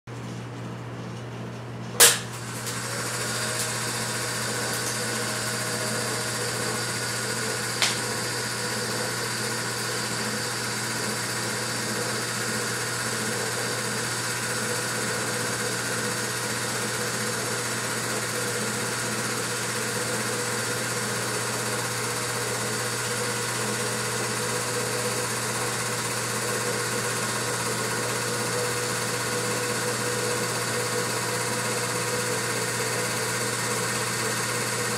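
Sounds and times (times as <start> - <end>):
film projector running: 1.6 - 34.9
projector clicks: 7.8 - 8.0.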